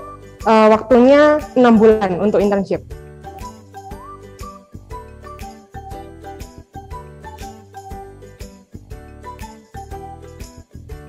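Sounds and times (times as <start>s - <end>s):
tinkling bell-like melody: 3.2s - 11.0s.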